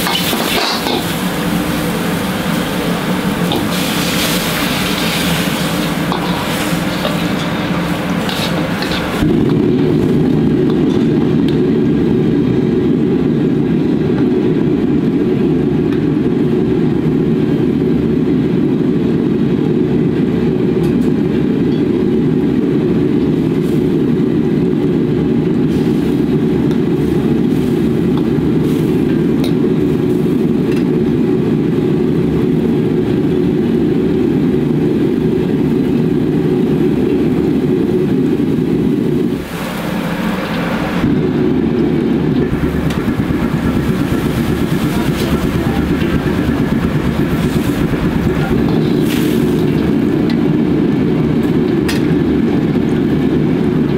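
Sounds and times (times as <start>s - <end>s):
gas burner flame rushing: 0.0s - 53.9s
stock boiling: 0.0s - 53.9s.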